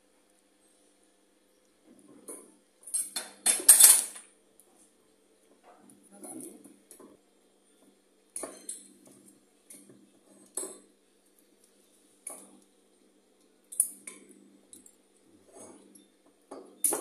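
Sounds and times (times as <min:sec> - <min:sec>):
cutlery and dishes clinking: 0:02.3 - 0:04.3.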